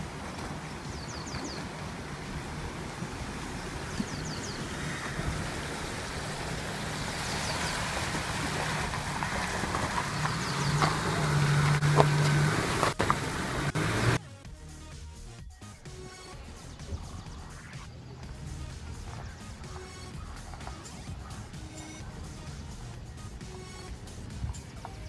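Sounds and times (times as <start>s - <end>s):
rushing noise: 0.0s - 14.2s
car engine running: 0.0s - 25.0s.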